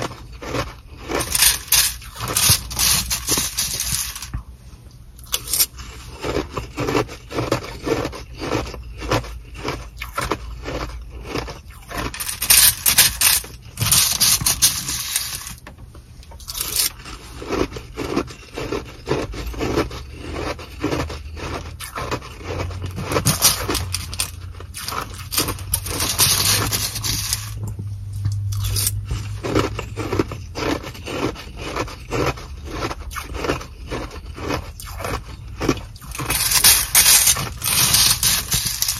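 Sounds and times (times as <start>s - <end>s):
spoon scraping in plastic bag: 0.0s - 4.4s, 5.2s - 15.6s, 16.3s - 27.6s, 28.4s - 38.9s
ice being chewed: 0.0s - 4.5s, 5.2s - 15.6s, 16.2s - 38.9s
plastic bag crinkling: 0.4s - 4.3s.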